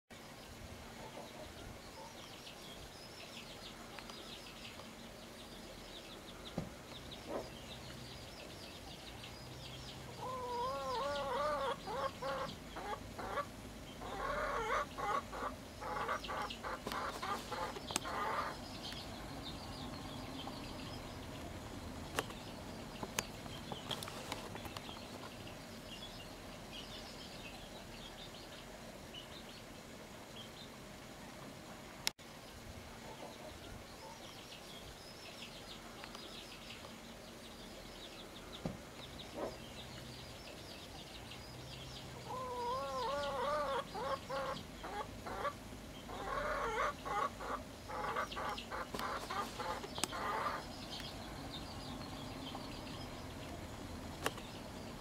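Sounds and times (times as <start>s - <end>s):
chicks peeping: 9.8s - 21.2s, 41.7s - 53.6s
hen clucking: 10.1s - 18.6s, 42.2s - 50.7s.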